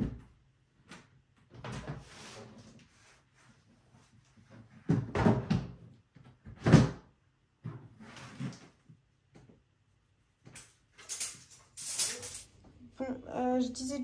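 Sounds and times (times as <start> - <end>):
scraping and rustling: 11.0 - 12.5.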